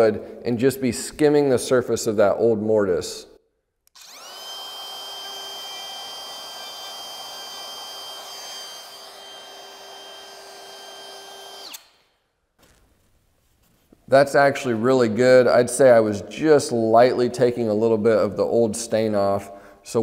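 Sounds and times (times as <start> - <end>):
router bit shaving wood: 3.9 - 11.9
router whining: 3.9 - 12.0.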